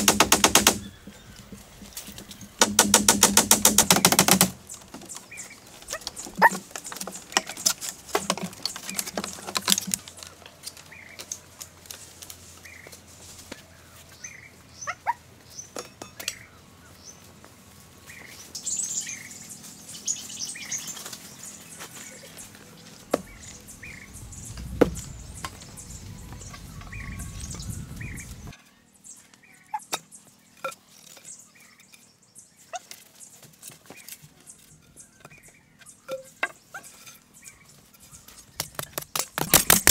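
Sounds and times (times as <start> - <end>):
birds chirping: 0.0 - 2.6, 3.9 - 11.8, 12.5 - 39.9
sharp knocks and taps: 2.1 - 5.1.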